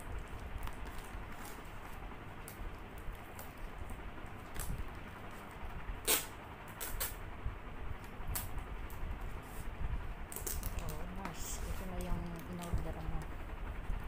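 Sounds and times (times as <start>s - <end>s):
scraping packing tape: 6.0s - 7.2s.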